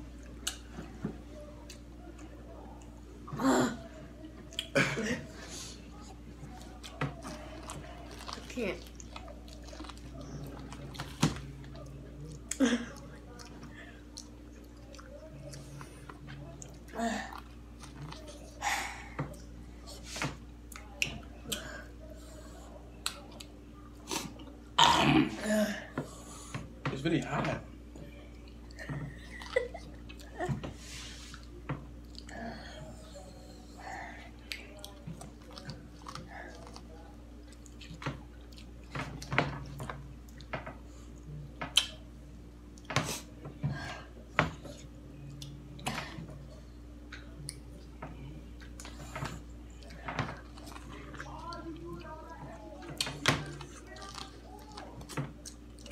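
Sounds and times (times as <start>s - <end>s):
crunches of eating: 0.0s - 55.9s
low steady hum: 0.0s - 55.9s
eating clicks and smacks: 0.2s - 0.7s, 41.6s - 42.0s.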